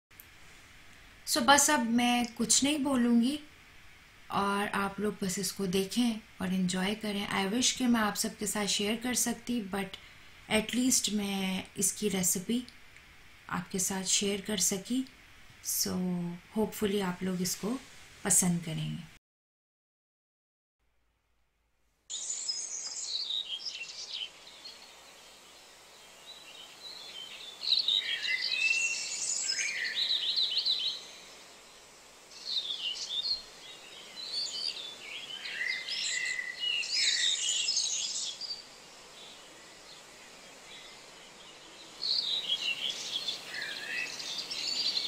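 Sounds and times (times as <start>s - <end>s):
steady outdoor hiss: 0.1s - 19.2s, 22.1s - 45.0s
songbirds chirping and twittering: 22.1s - 45.0s.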